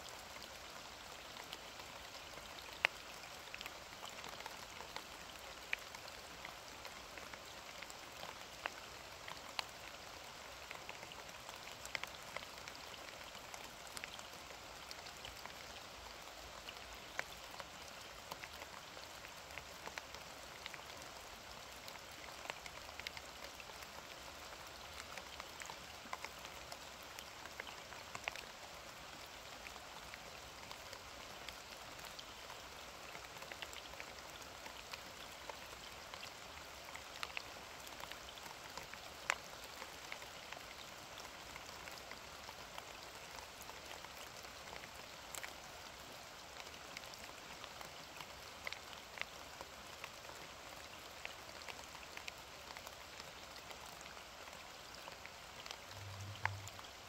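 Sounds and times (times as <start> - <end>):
steady rain pattering: 0.0 - 57.0.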